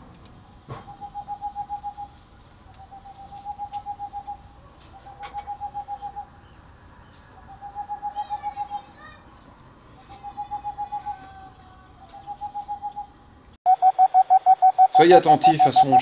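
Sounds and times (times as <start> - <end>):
owl hooting: 0.5 - 13.2, 13.8 - 16.0
faint high bird call: 0.6 - 6.3, 7.1 - 13.1.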